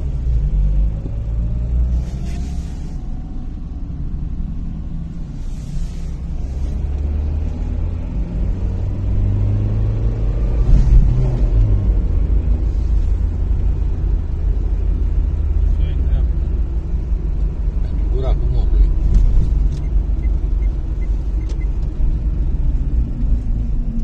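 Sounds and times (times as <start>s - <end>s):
car engine and tyres rumbling: 0.0s - 24.0s.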